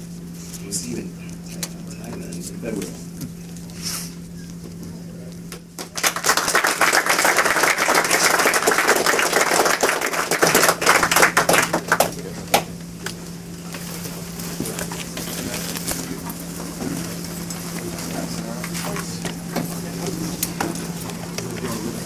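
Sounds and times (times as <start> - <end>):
audience applauding: 5.8 - 12.7.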